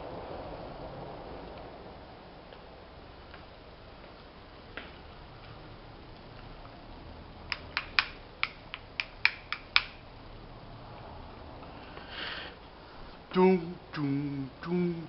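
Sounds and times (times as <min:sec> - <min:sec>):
short breathy hiss: 0:11.6 - 0:13.3
man talking: 0:13.3 - 0:15.0.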